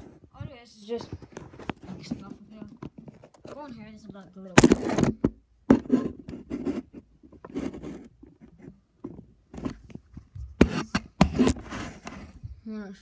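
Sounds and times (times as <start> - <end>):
boxes scraping rustling and knocking: 0.0 - 12.4.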